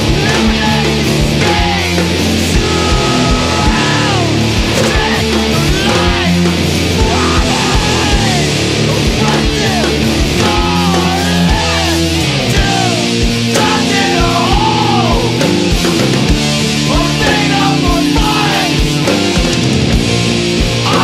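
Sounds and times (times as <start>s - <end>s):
bending guitar notes: 0.0s - 21.0s
rock band playing: 0.0s - 21.0s.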